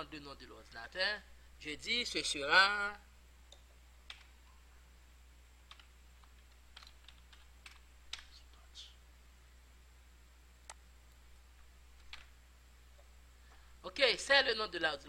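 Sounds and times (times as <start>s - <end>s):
steady low hum: 0.0s - 15.0s
computer keyboard typing: 4.1s - 4.3s, 5.7s - 8.4s, 12.0s - 12.3s.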